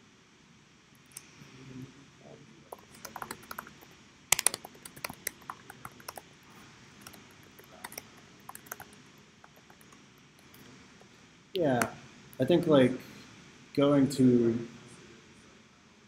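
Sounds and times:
keyboard key clicks: 0:02.8 - 0:06.2.

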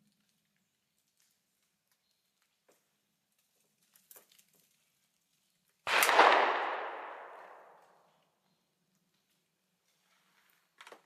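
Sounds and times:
gunshot with echo: 0:05.9 - 0:07.9.

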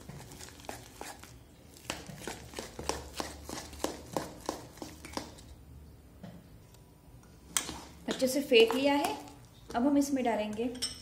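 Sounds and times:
batter slapping in steel bowl: 0:00.0 - 0:05.5.

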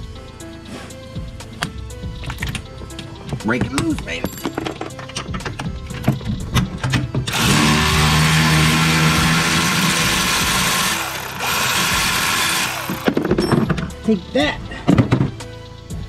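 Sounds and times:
electric ratchet spinning: 0:07.3 - 0:13.3.

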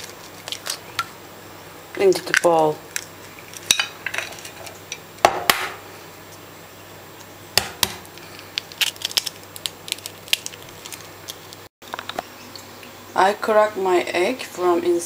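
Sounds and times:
eggshell crackling: 0:00.0 - 0:01.2, 0:01.9 - 0:05.1, 0:07.2 - 0:11.7.

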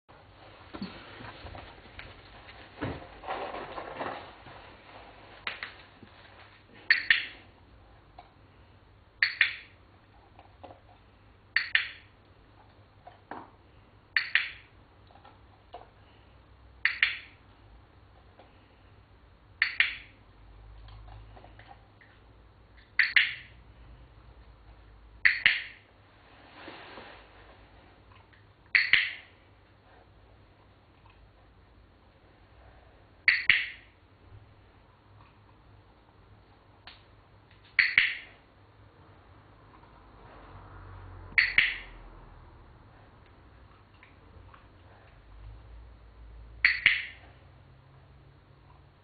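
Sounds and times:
faint handling sounds: 0:26.0 - 0:28.4.

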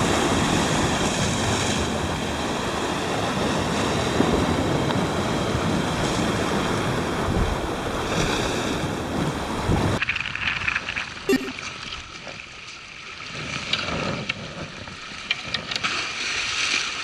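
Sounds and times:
wind buffeting microphone: 0:00.0 - 0:10.0
waves breaking on rocks: 0:00.0 - 0:10.8.

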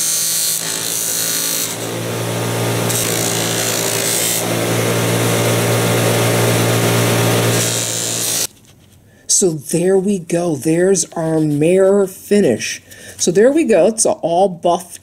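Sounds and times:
buff rubbing metal: 0:00.0 - 0:08.5
buffing wheel motor hum: 0:00.0 - 0:08.5.

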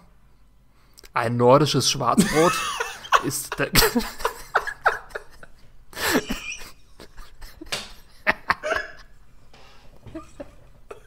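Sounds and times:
person laughing: 0:02.2 - 0:09.2, 0:10.0 - 0:11.0.

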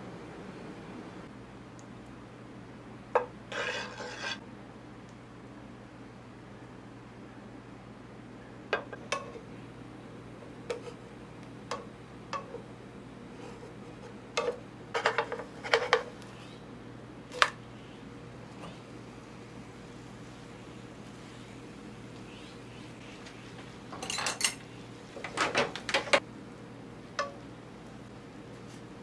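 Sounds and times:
low steady hum: 0:00.0 - 0:29.0
wooden spatula tapping a frying pan: 0:27.2 - 0:27.4.

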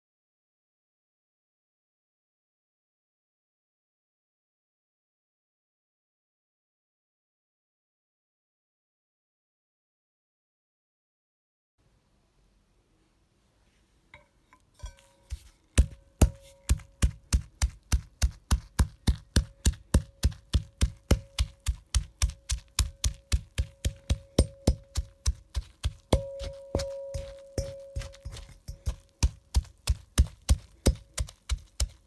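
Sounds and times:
leaves pounded in ceramic mortar: 0:14.7 - 0:32.0
steady ringing tone: 0:26.2 - 0:28.8.

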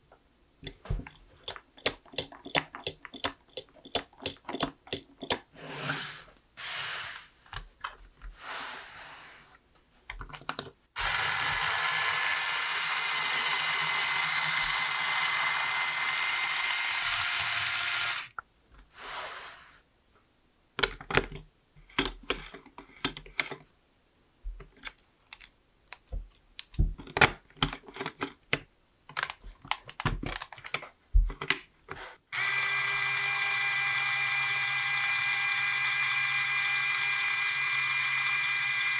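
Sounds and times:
plastic bricks clicking together: 0:00.6 - 0:05.4, 0:24.8 - 0:31.7
small electric motor whirring: 0:11.0 - 0:18.4, 0:32.4 - 0:38.9.

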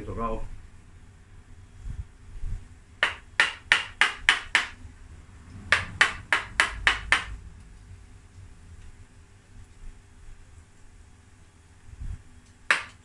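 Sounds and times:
gouge tapping into wood: 0:03.0 - 0:04.8, 0:05.7 - 0:07.4, 0:12.7 - 0:13.0.

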